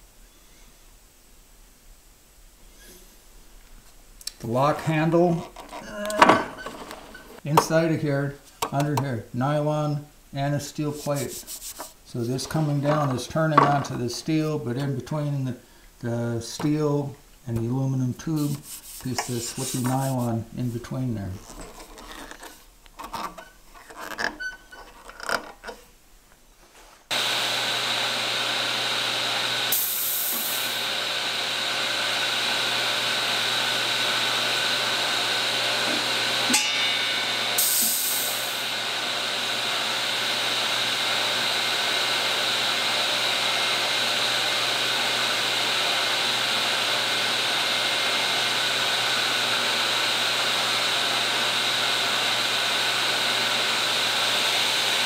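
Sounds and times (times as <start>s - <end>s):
table saw running: 27.1s - 55.0s
pneumatic air hiss: 29.7s - 30.8s, 37.6s - 38.6s.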